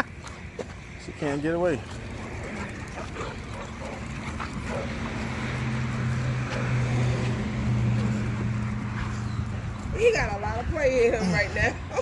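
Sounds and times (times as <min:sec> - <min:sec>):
steady engine-like hum: 0:00.0 - 0:12.0
dogs playing: 0:01.6 - 0:09.9.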